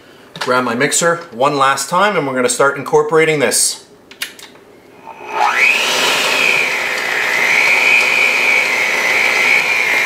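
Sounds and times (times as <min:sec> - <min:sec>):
electric hand mixer whine: 0:04.9 - 0:10.0.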